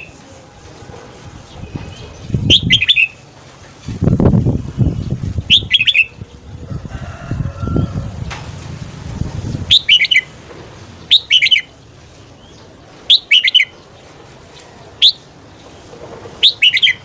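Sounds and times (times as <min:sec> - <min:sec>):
bird singing whistled phrases: 0:02.4 - 0:03.2, 0:05.5 - 0:06.1, 0:09.7 - 0:10.3, 0:11.1 - 0:11.7, 0:13.1 - 0:13.7, 0:15.0 - 0:15.2, 0:16.4 - 0:17.0.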